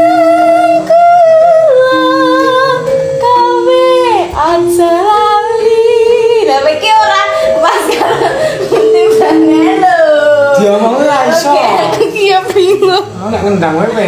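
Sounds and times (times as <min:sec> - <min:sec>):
woman singing slow melody: 0:00.0 - 0:10.6.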